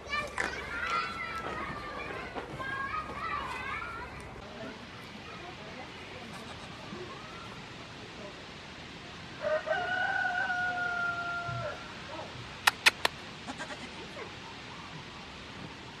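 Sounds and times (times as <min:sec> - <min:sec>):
rooster crowing: 0:09.4 - 0:11.8
quick sharp clicks: 0:12.7 - 0:13.2.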